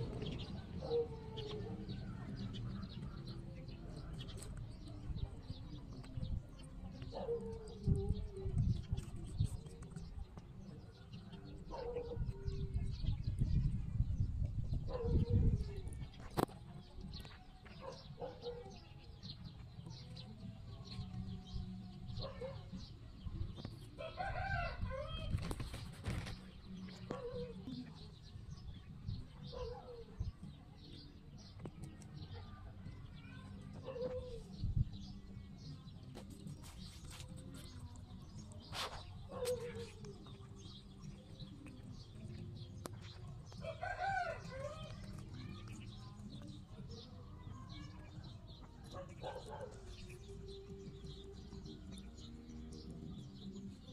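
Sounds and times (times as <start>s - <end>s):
birds calling: 0.0s - 13.0s, 14.8s - 23.0s, 23.6s - 53.9s
rabbits chewing: 14.9s - 53.9s.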